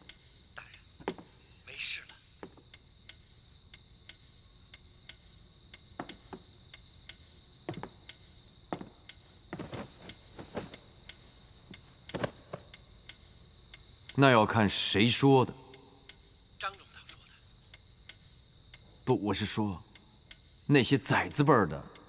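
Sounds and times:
crickets chirping: 0:00.0 - 0:22.0
soft knocks and clicks: 0:06.0 - 0:12.9.

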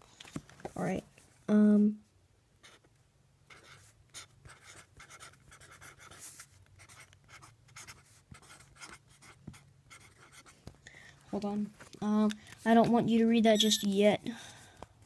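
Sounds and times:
pen scratching on paper: 0:03.5 - 0:10.5.

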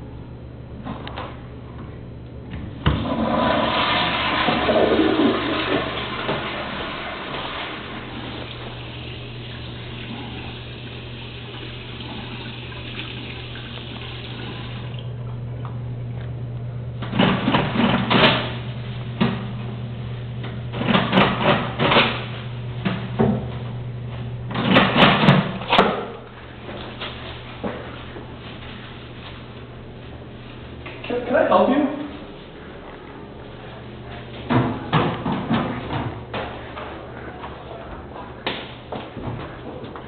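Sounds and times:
steady low hum: 0:00.0 - 0:03.6, 0:04.3 - 0:40.0
tap water running into sink: 0:03.1 - 0:15.1.

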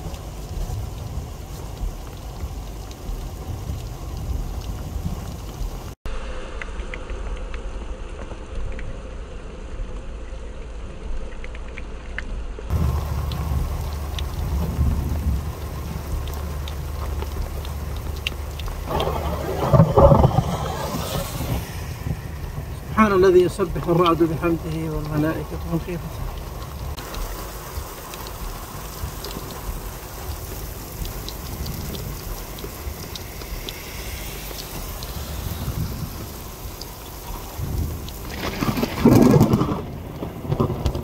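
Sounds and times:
heavy rain: 0:00.0 - 0:41.0
rumble of thunder: 0:12.7 - 0:41.0.

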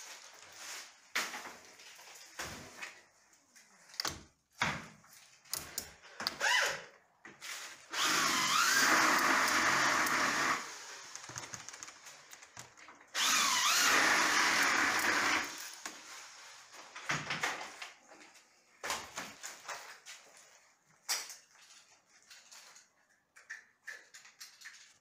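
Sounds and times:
power drill whining: 0:07.9 - 0:11.3, 0:13.1 - 0:15.8.

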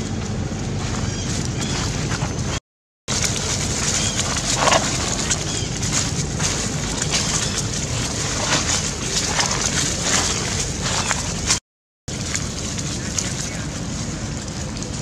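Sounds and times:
dry leaves crunching underfoot: 0:00.0 - 0:15.0
wind rumble on microphone: 0:00.0 - 0:15.0.

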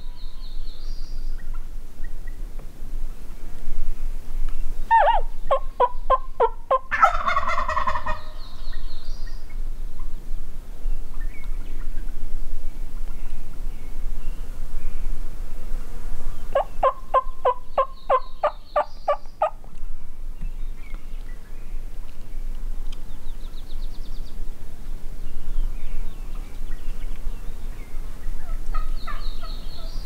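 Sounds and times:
turkey calling: 0:04.9 - 0:08.4, 0:16.5 - 0:19.6, 0:28.4 - 0:30.0.

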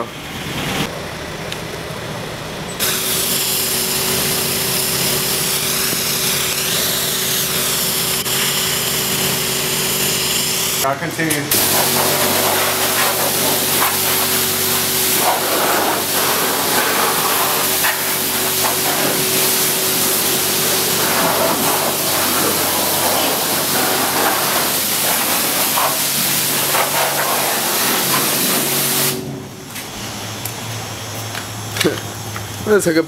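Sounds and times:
pressure washer spraying metal: 0:02.8 - 0:10.9, 0:11.5 - 0:30.0.

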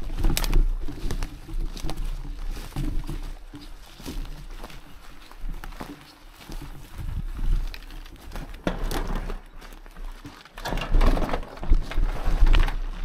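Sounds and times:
wind rumbling on microphone: 0:00.0 - 0:09.0
bike rattling: 0:00.0 - 0:13.0
bike tyres crunching on gravel: 0:00.0 - 0:13.0.

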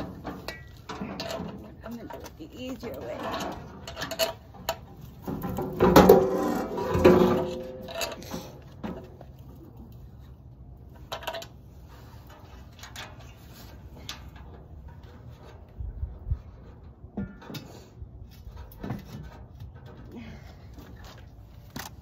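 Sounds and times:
sheet metal clanking and scraping: 0:00.0 - 0:09.4.

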